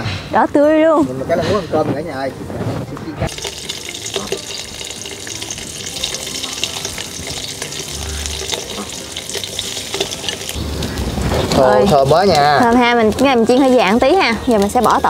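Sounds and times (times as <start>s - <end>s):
fish sizzling in hot oil: 3.3s - 15.0s.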